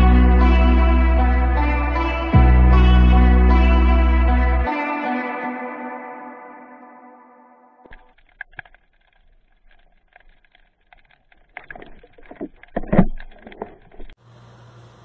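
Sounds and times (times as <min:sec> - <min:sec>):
underwater clicks and crackles: 0:07.9 - 0:14.2
steady hiss with low hum: 0:14.2 - 0:15.0.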